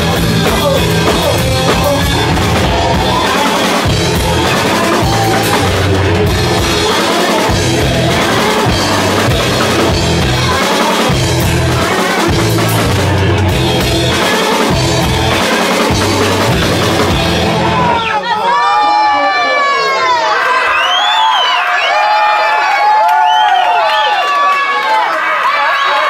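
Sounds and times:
repeating bass riff: 0.0s - 18.0s
rock band playing live: 0.0s - 18.1s.

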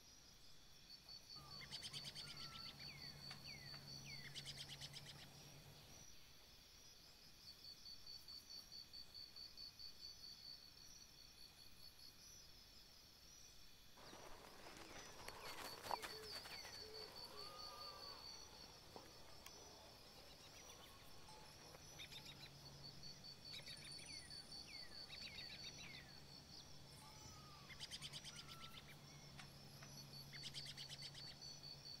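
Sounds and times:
faint low hum: 0.1s - 32.0s
high insect trill: 7.2s - 32.0s.

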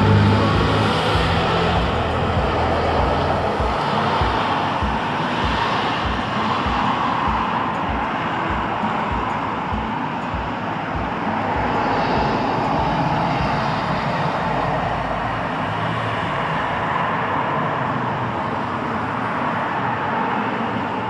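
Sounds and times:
street traffic passing: 0.0s - 21.0s.

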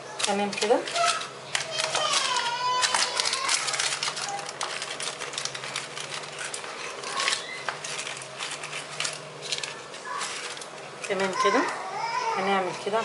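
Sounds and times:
baking paper crinkling: 0.0s - 13.0s.

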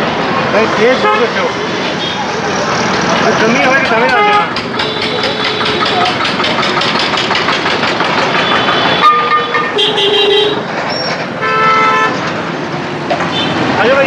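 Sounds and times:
road traffic: 0.0s - 14.0s
vehicle horns tooting: 1.0s - 2.3s, 3.7s - 6.2s, 8.2s - 10.7s, 11.4s - 12.2s, 13.2s - 13.7s.

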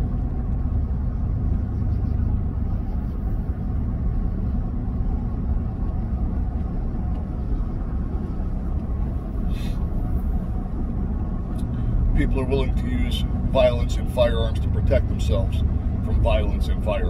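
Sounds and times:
car cabin rumble: 0.0s - 17.0s.

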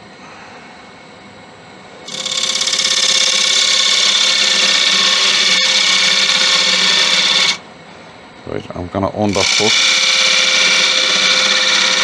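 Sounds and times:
wood lathe turning scraping hiss: 2.1s - 7.6s, 9.3s - 12.0s.

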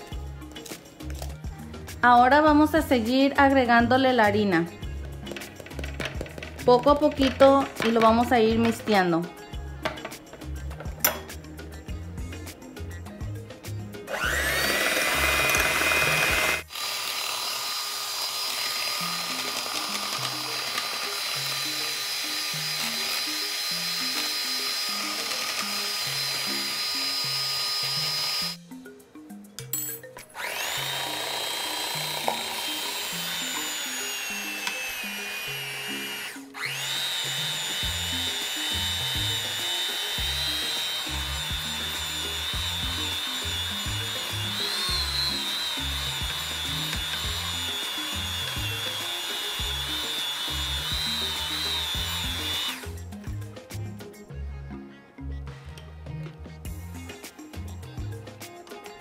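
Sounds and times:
background music: 0.0s - 16.8s, 17.9s - 59.0s
electric hand mixer whirring: 14.0s - 28.6s, 30.3s - 53.0s.

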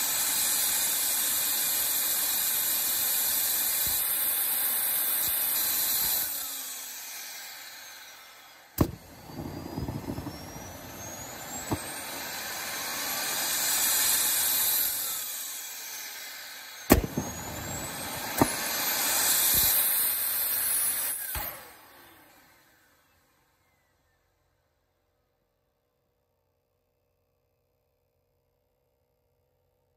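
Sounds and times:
turbine whine: 0.0s - 24.4s
pops and sputtering combustion: 8.8s - 12.4s, 16.9s - 19.8s.

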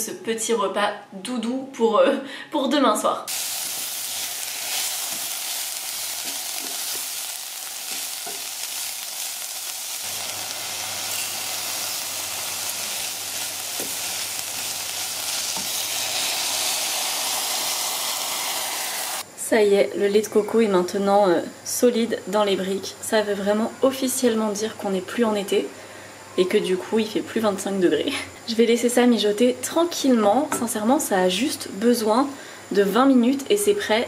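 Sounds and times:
onions sizzling in a pot: 3.3s - 19.3s.

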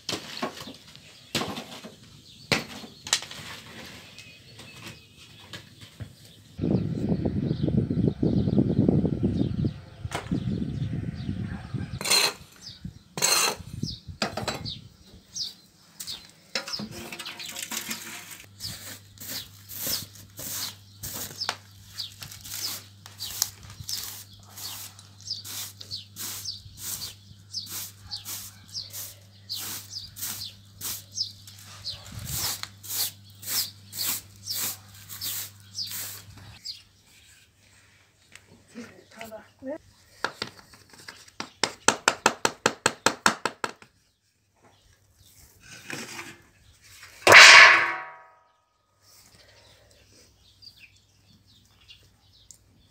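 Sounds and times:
embers raked across clay floor: 0.0s - 6.3s, 16.2s - 36.6s.

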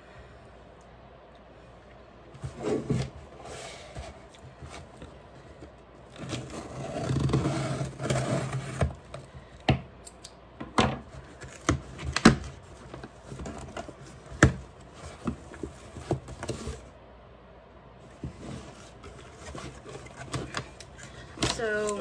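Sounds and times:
cardboard flaps scraping and knocking: 11.0s - 16.9s.

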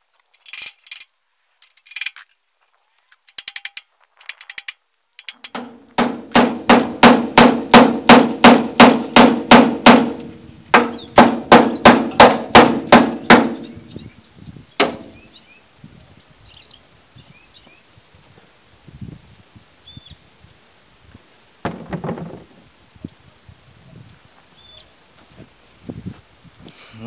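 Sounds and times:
hammer striking steel panel: 5.4s - 13.7s, 14.8s - 15.2s.

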